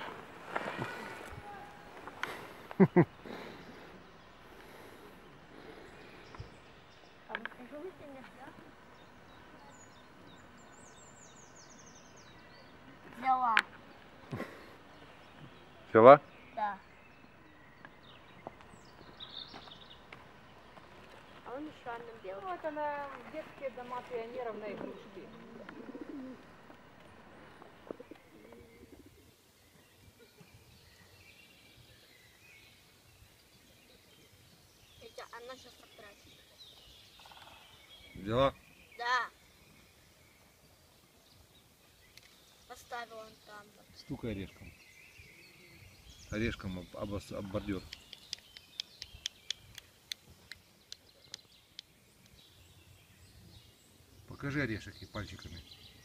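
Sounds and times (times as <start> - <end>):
small birds chirping: 0.0 - 56.0
pigeon cooing: 24.9 - 26.6, 27.8 - 29.3.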